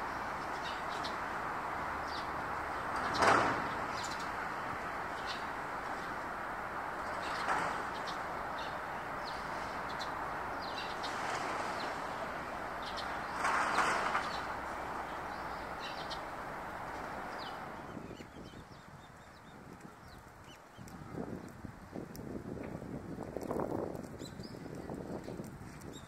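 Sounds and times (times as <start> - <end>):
steady rushing noise: 0.0 - 18.1
sparrows chirping: 0.0 - 21.5, 24.2 - 25.1.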